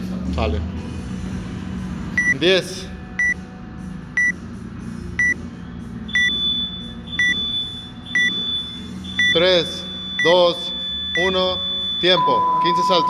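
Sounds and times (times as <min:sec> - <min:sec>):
countdown timer short beeps: 0:02.2 - 0:02.4, 0:04.2 - 0:04.4, 0:06.1 - 0:13.0.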